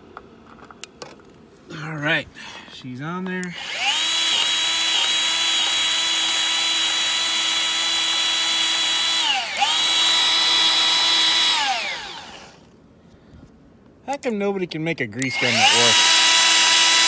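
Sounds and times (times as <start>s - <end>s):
grease gun motor whining: 3.4s - 12.7s, 15.2s - 17.0s.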